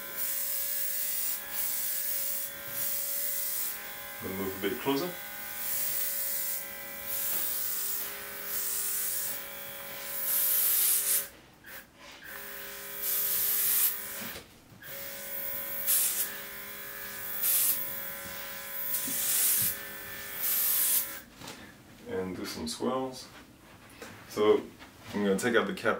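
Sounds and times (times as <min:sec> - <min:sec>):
airbrush compressor motor whine: 0:00.0 - 0:21.2
air hiss bursts: 0:15.8 - 0:16.3, 0:18.9 - 0:19.8, 0:20.4 - 0:21.0.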